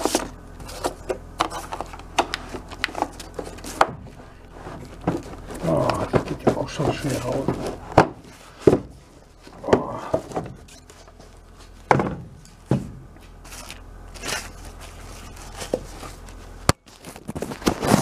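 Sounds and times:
plastic bag rustling: 0:13.4 - 0:18.0.

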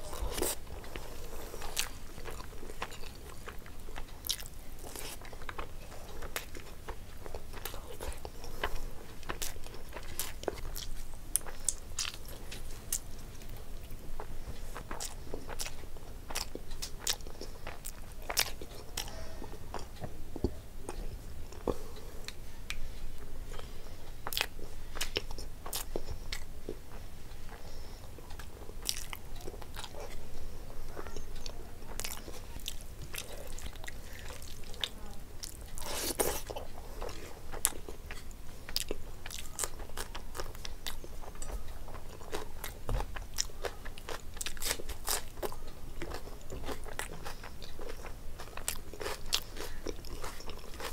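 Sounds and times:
crunching of crisp food: 0:00.0 - 0:19.1, 0:30.9 - 0:50.9
person chewing food: 0:00.0 - 0:50.9.

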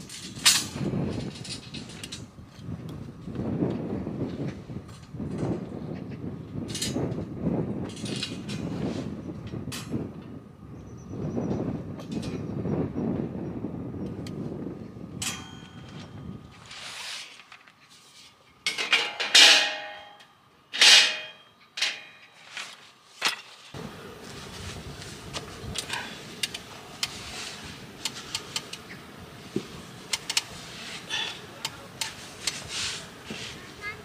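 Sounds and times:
outdoor background: 0:00.0 - 0:34.0
metallic ring: 0:15.2 - 0:17.3, 0:18.6 - 0:22.6
folding table clacking: 0:18.7 - 0:20.2.

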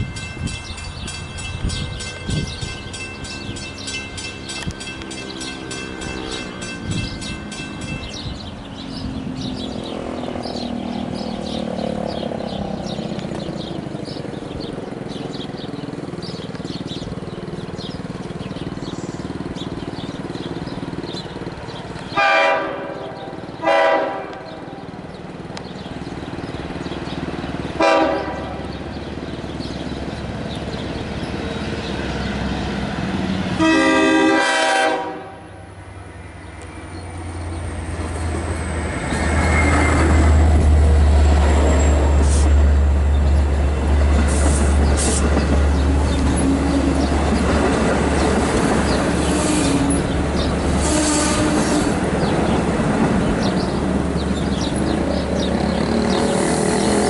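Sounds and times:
diesel train rumbling past: 0:00.0 - 0:57.0
train air horn blasts: 0:04.6 - 0:07.2, 0:22.2 - 0:24.7, 0:27.8 - 0:28.7, 0:33.6 - 0:35.6, 0:49.2 - 0:50.0, 0:50.7 - 0:52.0.

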